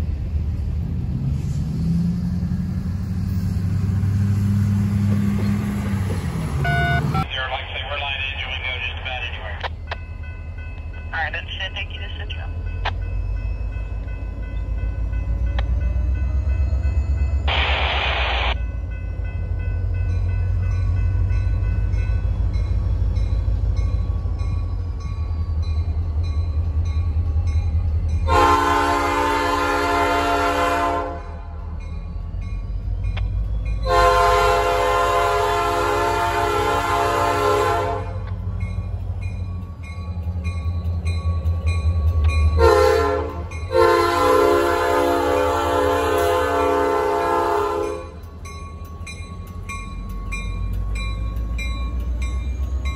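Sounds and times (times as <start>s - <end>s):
locomotive engine rumble: 0.0s - 52.9s
train horn blasts: 6.6s - 7.2s, 28.2s - 31.5s, 33.8s - 38.3s, 42.6s - 48.2s
short burst of noise: 17.5s - 18.6s.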